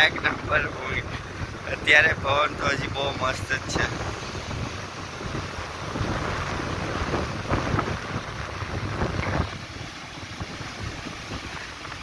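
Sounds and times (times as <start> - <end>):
surf breaking on beach: 0.0 - 12.0
wind buffeting microphone: 0.0 - 12.0.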